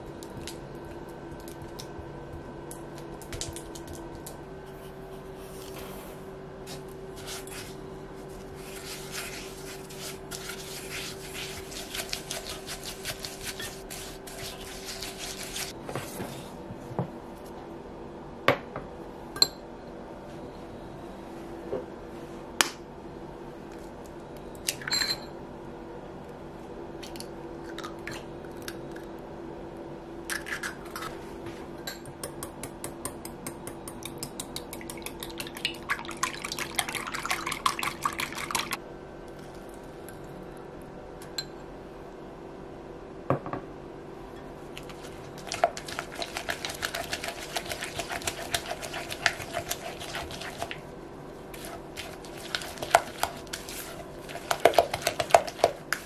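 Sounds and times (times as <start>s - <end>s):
spatula stirring batter: 7.2s - 15.8s, 44.8s - 50.8s, 51.5s - 56.0s.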